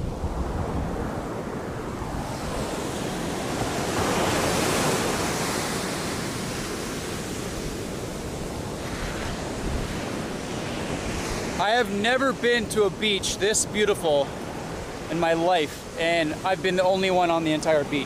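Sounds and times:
ocean waves on beach: 0:00.0 - 0:18.0.

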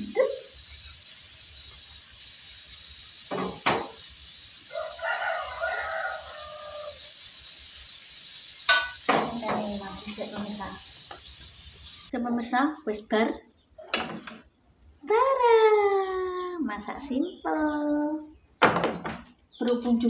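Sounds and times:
food frying in oil: 0:00.0 - 0:12.2
rooster crowing: 0:04.6 - 0:07.2.

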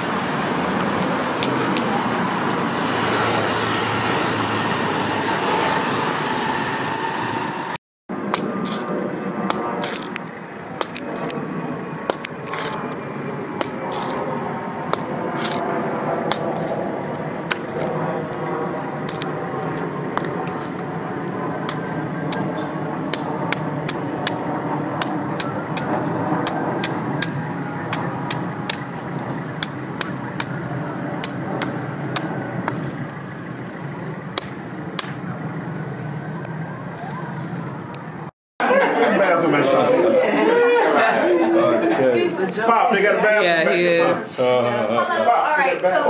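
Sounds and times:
machete chopping coconut husk: 0:08.3 - 0:10.2, 0:10.8 - 0:11.4, 0:12.0 - 0:12.8, 0:13.6 - 0:14.3, 0:14.9 - 0:15.6, 0:16.3 - 0:16.8, 0:19.0 - 0:20.9, 0:21.6 - 0:33.0, 0:34.4 - 0:35.2.

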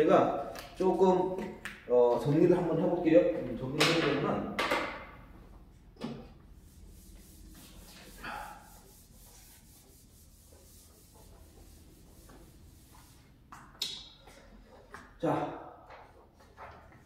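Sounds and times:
whiteboard eraser wiping: 0:06.3 - 0:13.7.

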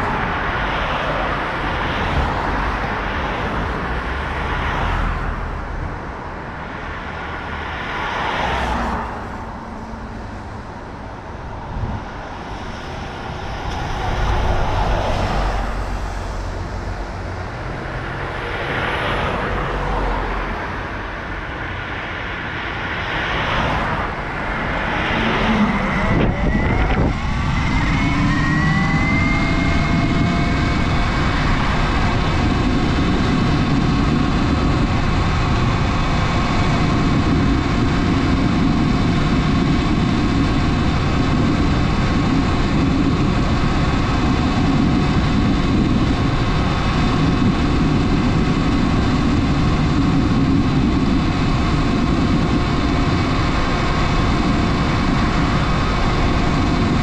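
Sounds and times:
wind and road noise: 0:00.0 - 0:57.0
electric motor whine: 0:24.8 - 0:50.9.

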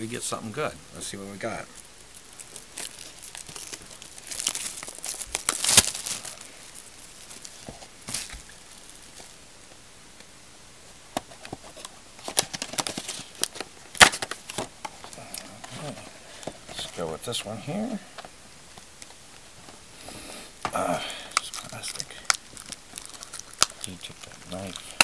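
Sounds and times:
wrapping crinkling and tearing: 0:01.1 - 0:09.4, 0:11.4 - 0:18.0, 0:20.7 - 0:25.0.

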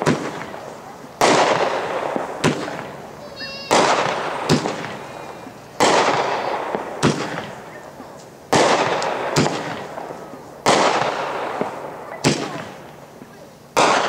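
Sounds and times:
firework launch cracks: 0:00.0 - 0:14.0
firework bangs in the air: 0:01.2 - 0:03.0, 0:03.7 - 0:07.7, 0:08.5 - 0:12.8.

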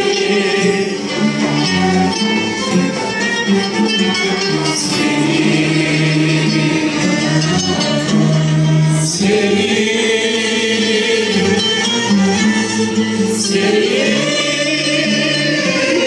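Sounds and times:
classical string ensemble: 0:00.0 - 0:16.0
mixed choir singing: 0:00.0 - 0:16.0.

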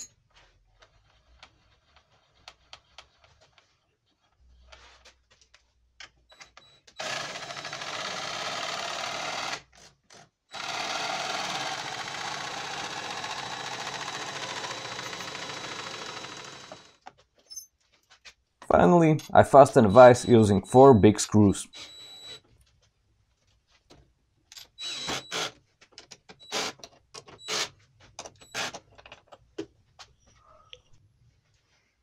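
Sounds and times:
cordless drill driving screws: 0:06.9 - 0:09.8, 0:10.5 - 0:17.0, 0:24.8 - 0:25.6, 0:26.3 - 0:28.8.

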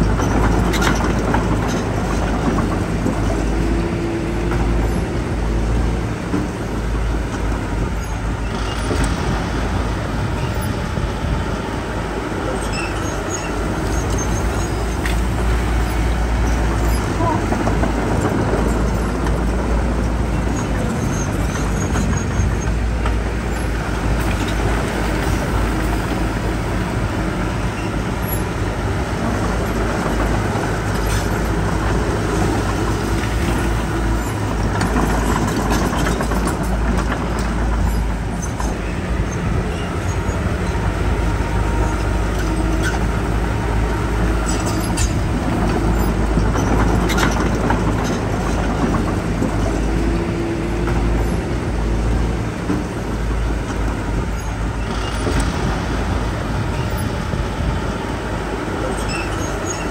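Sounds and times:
heavy diesel machinery rumbling: 0:00.0 - 0:59.9.

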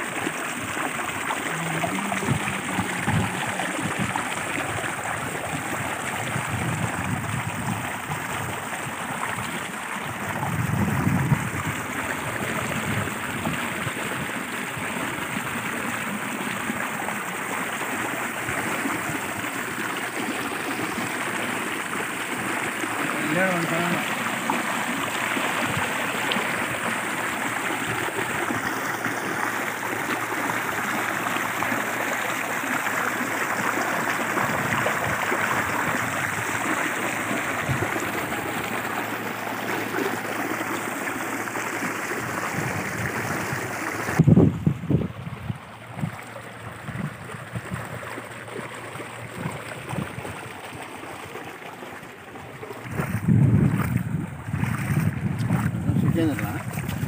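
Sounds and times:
water pouring into tank: 0:00.0 - 0:57.0
wind rumbling on microphone: 0:01.4 - 0:14.9, 0:37.4 - 0:38.9, 0:42.2 - 0:48.1, 0:49.2 - 0:50.6, 0:52.6 - 0:57.0.

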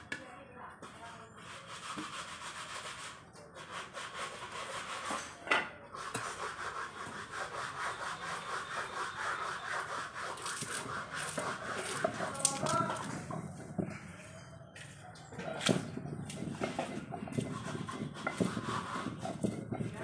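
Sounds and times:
stone roller scraping grinding slab: 0:06.0 - 0:14.0, 0:15.4 - 0:20.0.

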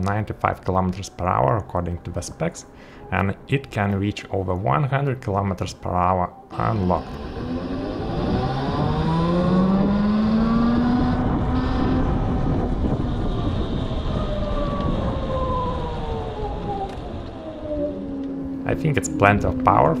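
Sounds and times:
electric motor whining: 0:06.5 - 0:20.0
wind rumble on microphone: 0:06.7 - 0:20.0.

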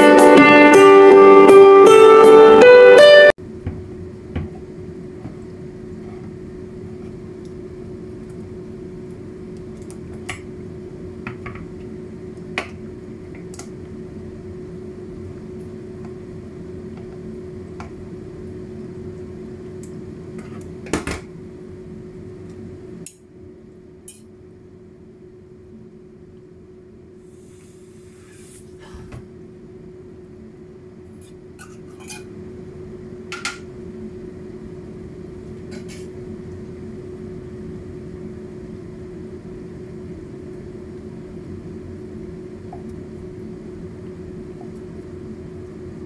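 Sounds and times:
guitar music: 0:00.0 - 0:03.3
steady low hum: 0:03.4 - 0:46.0.

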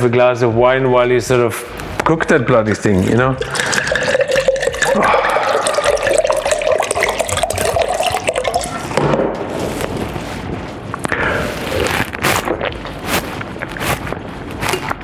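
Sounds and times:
wine pouring into glass: 0:02.7 - 0:09.0.

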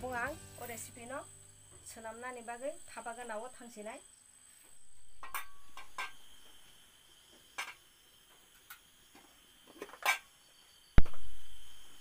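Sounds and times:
cookware clicks and knocks: 0:05.2 - 0:06.2, 0:07.6 - 0:07.8.

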